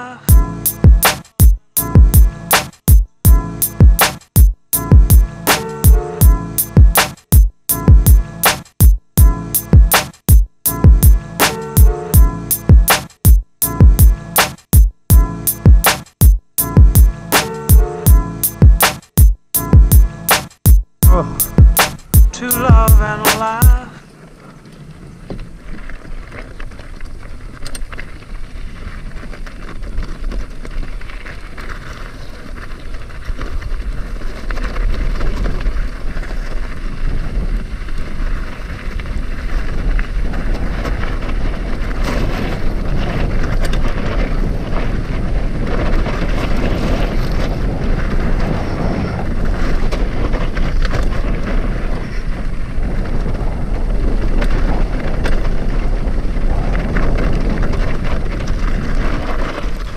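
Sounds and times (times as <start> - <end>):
wind buffeting microphone: 22.7 - 59.9.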